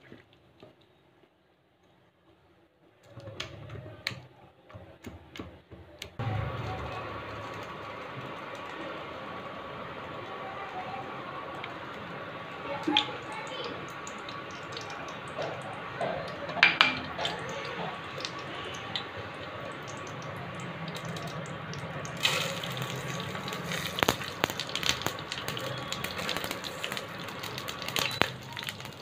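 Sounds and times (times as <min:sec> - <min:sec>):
oil hissing in a pan: 0:17.1 - 0:29.0
seeds sizzling and crackling: 0:18.0 - 0:29.0.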